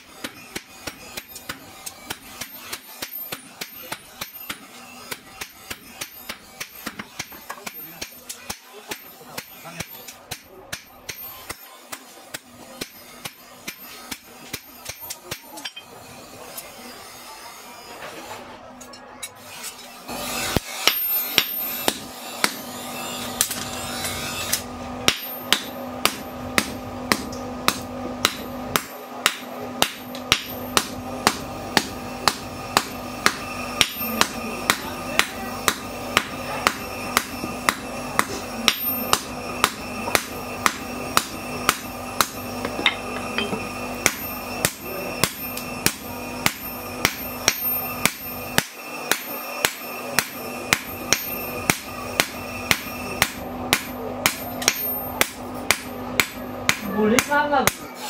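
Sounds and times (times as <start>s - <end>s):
hammer striking metal on anvil: 0.0s - 17.2s, 20.1s - 58.0s
steady hum: 20.2s - 58.0s.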